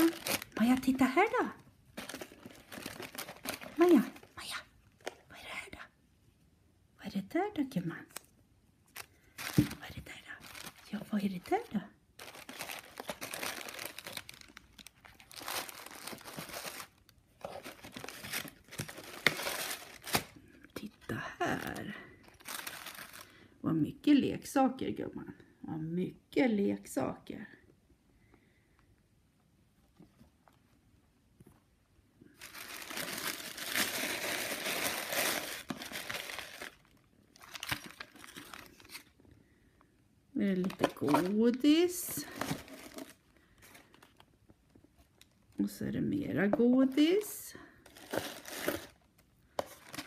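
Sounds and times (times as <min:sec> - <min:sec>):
tissue paper crinkling: 0:00.0 - 0:04.4, 0:08.9 - 0:11.5, 0:12.2 - 0:20.4, 0:21.5 - 0:23.4, 0:32.4 - 0:39.1, 0:42.2 - 0:44.2, 0:47.8 - 0:49.0.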